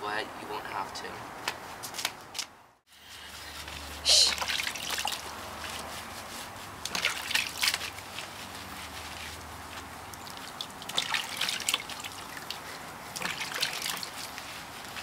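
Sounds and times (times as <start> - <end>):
hands scrubbing wet fur: 2.9 - 15.0
water sloshing in a plastic basin: 3.2 - 15.0.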